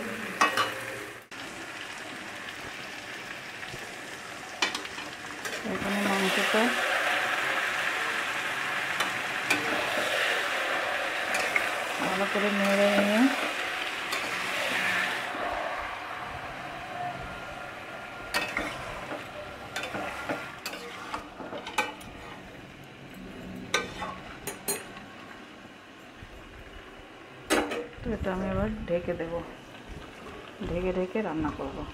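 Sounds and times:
meat sizzling in hot oil: 0:00.0 - 0:22.8
spatula scraping metal pan: 0:09.0 - 0:15.5, 0:18.3 - 0:22.4.

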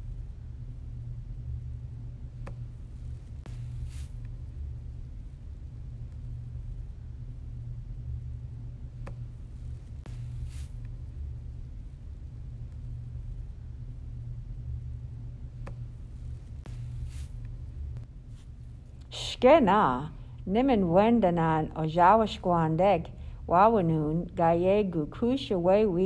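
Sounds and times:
low background hum: 0:00.0 - 0:26.0
soft hiss: 0:02.4 - 0:05.3, 0:09.0 - 0:13.4, 0:15.5 - 0:19.6.

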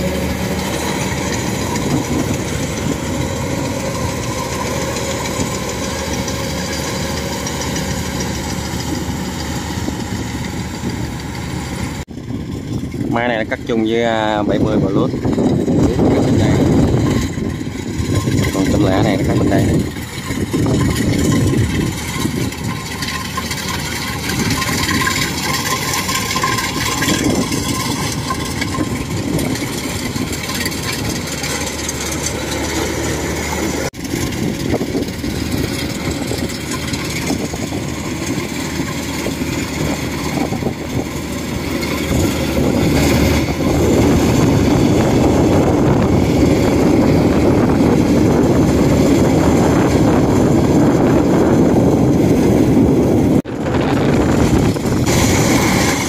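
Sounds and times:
combine harvester droning: 0:00.0 - 0:56.0.

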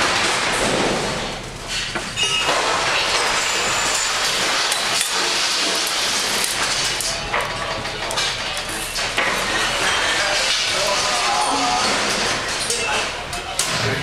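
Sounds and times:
glass and objects clinking: 0:02.0 - 0:13.2.

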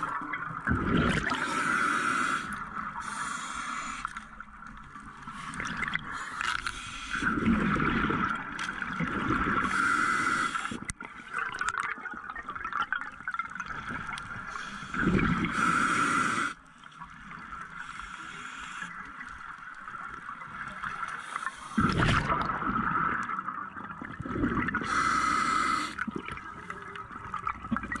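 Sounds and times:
diver breathing through regulator: 0:01.2 - 0:04.2, 0:05.3 - 0:07.4, 0:09.6 - 0:10.9, 0:14.5 - 0:16.6, 0:24.7 - 0:26.0.

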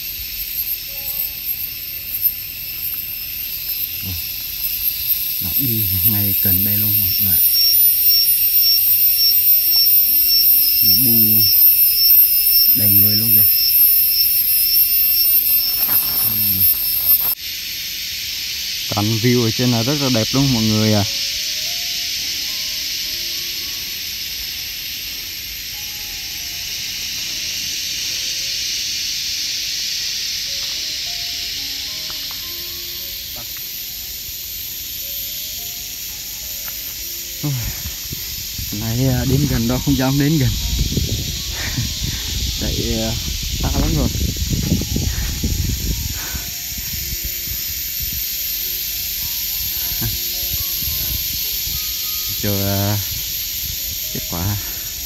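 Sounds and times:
soft background music: 0:00.0 - 0:17.4, 0:18.9 - 0:55.0
steady high hiss: 0:00.0 - 0:55.0
wind buffeting microphone: 0:37.7 - 0:48.3.

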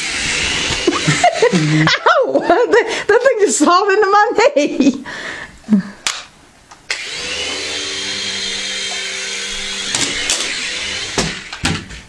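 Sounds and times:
toy helicopter motor and rotor: 0:00.0 - 0:01.2, 0:06.9 - 0:11.6.

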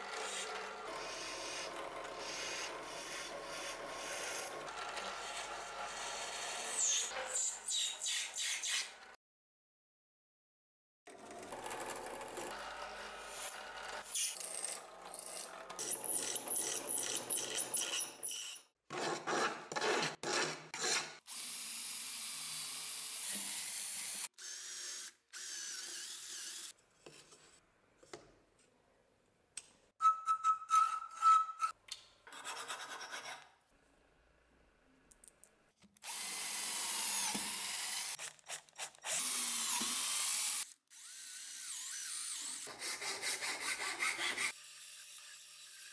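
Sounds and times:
electric drill drilling steel: 0:00.0 - 0:06.9, 0:21.3 - 0:26.7, 0:36.0 - 0:38.2, 0:39.0 - 0:42.7.

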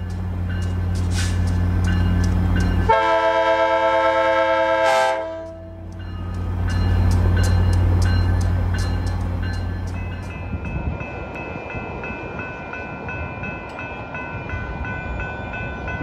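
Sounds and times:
locomotive air horn: 0:02.9 - 0:05.8.

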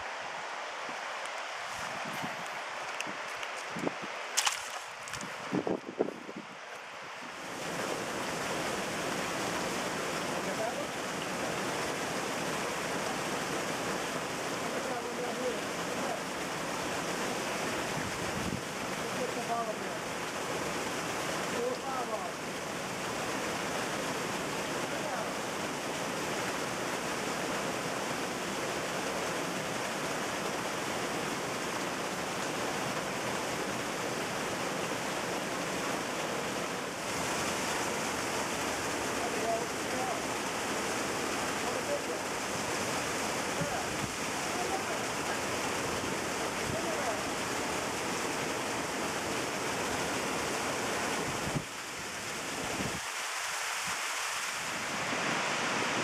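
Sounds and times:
water rushing at a dam: 0:00.0 - 0:56.0
wind buffeting microphone: 0:01.8 - 0:04.2, 0:05.0 - 0:06.6, 0:17.9 - 0:18.7, 0:52.6 - 0:53.0.

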